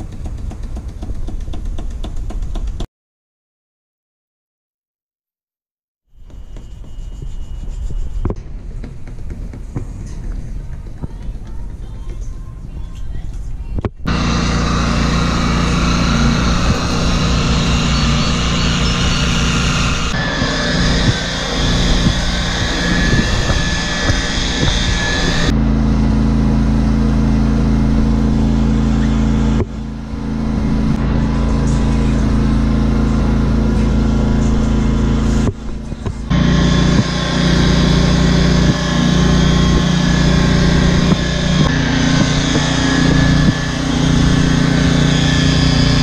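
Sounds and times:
electric polisher motor hum: 0:14.1 - 0:31.3, 0:36.3 - 0:46.0.

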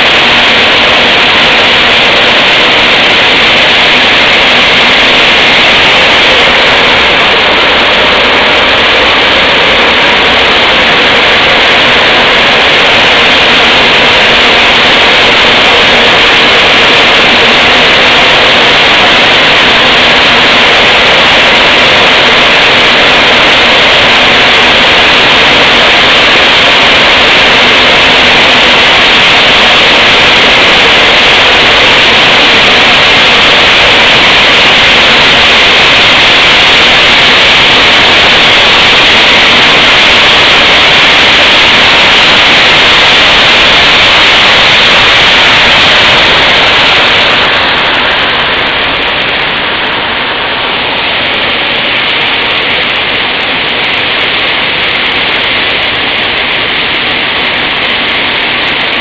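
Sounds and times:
flour mill machinery roaring: 0:00.0 - 0:59.0.

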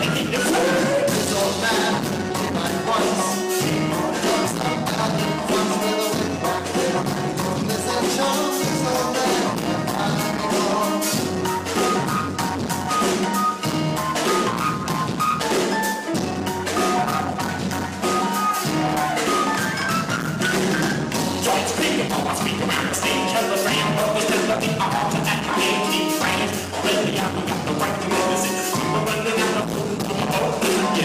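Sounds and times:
live band playing loud: 0:00.0 - 0:31.0.

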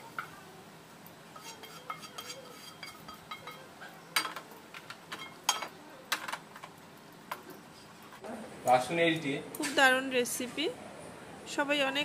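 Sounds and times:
spatula scraping frying pan: 0:01.3 - 0:04.3.

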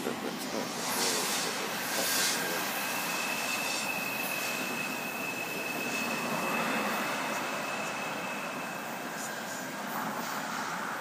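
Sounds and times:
freight train rumbling: 0:00.0 - 0:11.0
wheels squealing on rail: 0:00.0 - 0:11.0.

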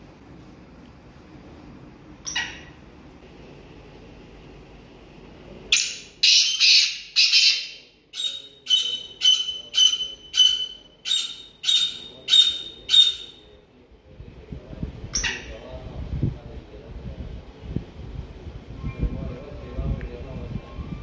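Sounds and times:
francolin calling harsh notes: 0:05.7 - 0:13.5.

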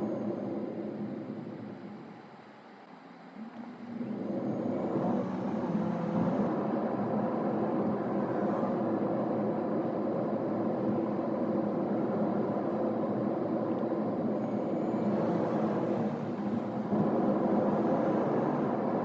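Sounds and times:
car road and engine noise: 0:00.0 - 0:19.0.

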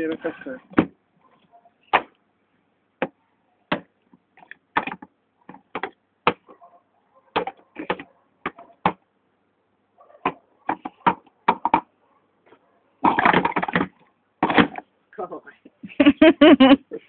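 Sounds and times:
plastic cups clacking: 0:13.0 - 0:14.8.

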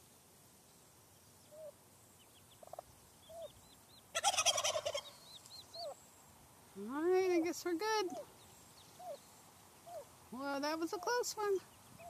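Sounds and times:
poults peeping: 0:00.6 - 0:12.0
turkey fast rattling call: 0:04.1 - 0:05.1.

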